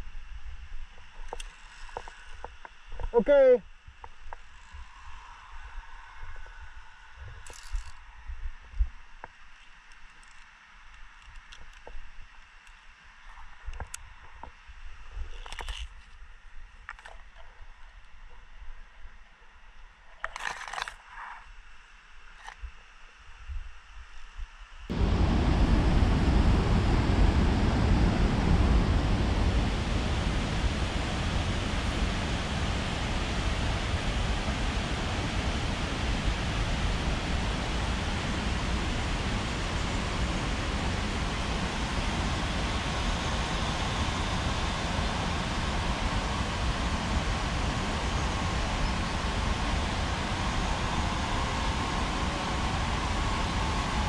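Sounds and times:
wind rush on microphone: 24.9s - 54.0s.

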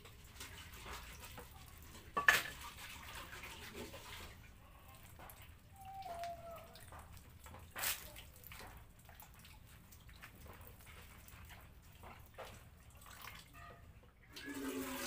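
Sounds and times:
tap water running and splashing: 0.0s - 15.0s
water dripping into basin: 4.5s - 14.4s.

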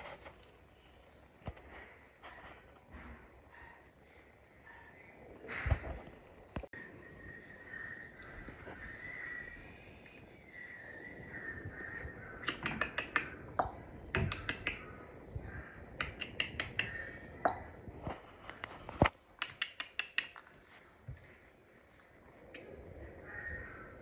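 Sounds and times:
quick runs of sharp clicks: 12.4s - 14.8s, 16.0s - 17.0s, 18.5s - 20.5s.

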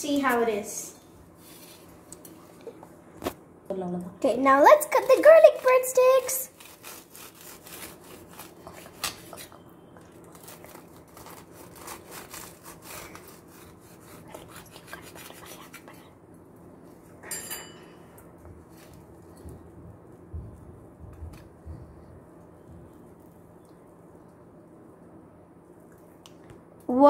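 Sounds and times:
knife sawing through crunchy toast: 6.5s - 9.1s, 10.7s - 15.9s.

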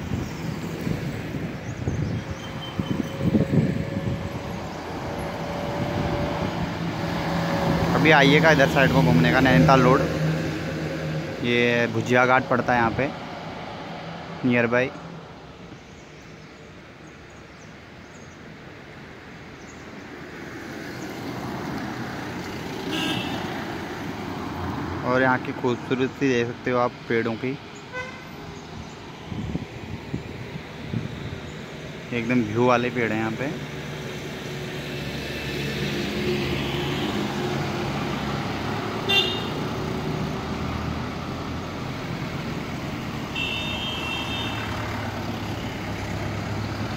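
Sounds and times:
car engine and tyre noise: 0.0s - 46.9s
road traffic passing: 0.0s - 46.9s
vehicle horn honking: 22.9s - 23.5s, 27.9s - 28.3s, 39.1s - 39.6s, 43.3s - 44.7s.

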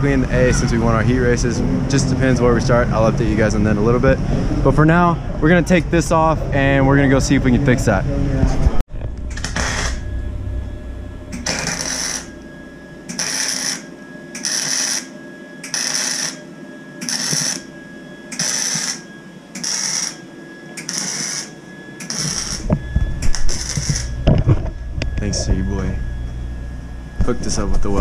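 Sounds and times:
crackling welding arc: 9.2s - 10.0s, 11.4s - 12.4s, 13.1s - 13.8s, 14.4s - 16.4s, 17.0s - 17.7s, 18.3s - 19.0s, 19.6s - 20.2s, 20.8s - 24.1s.

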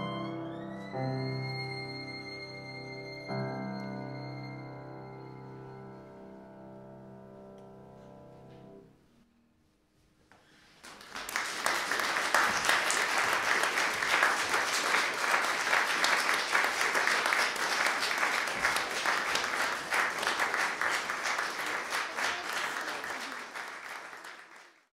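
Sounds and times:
audience applauding: 10.8s - 24.9s.

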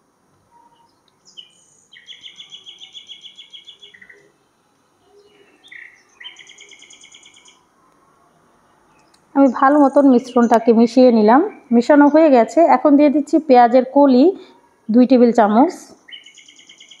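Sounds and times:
bird singing trills: 0.5s - 4.4s, 5.0s - 7.7s, 8.6s - 12.7s, 15.9s - 17.0s.

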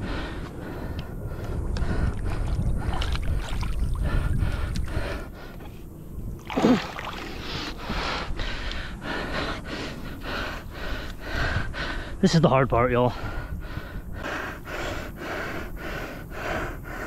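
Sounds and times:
man breathing hard: 0.0s - 3.0s, 3.9s - 6.0s, 6.7s - 12.3s, 13.1s - 17.0s
water and mud sloshing: 2.2s - 5.1s, 6.4s - 7.9s.

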